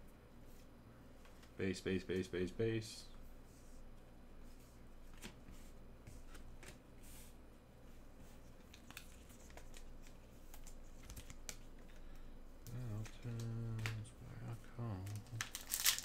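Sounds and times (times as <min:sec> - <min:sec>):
trading cards rustling and clicking: 0:08.6 - 0:14.1, 0:15.0 - 0:16.0.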